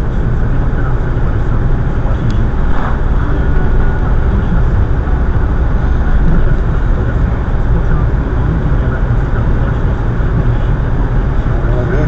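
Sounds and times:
car engine and tyre rumble: 0.0 - 12.0.

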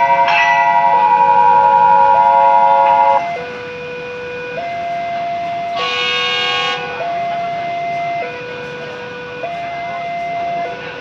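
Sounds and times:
bell-like ringing tones: 0.0 - 3.5
railway warning alarm two tones: 0.0 - 11.0.

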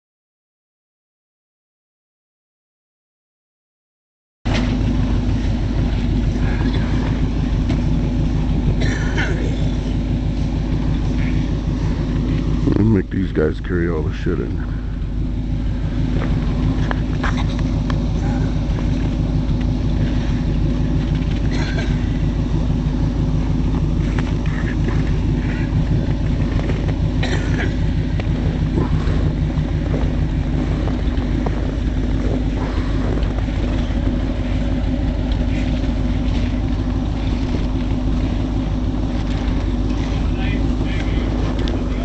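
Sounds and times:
snowmobile engine idling: 4.5 - 42.0.

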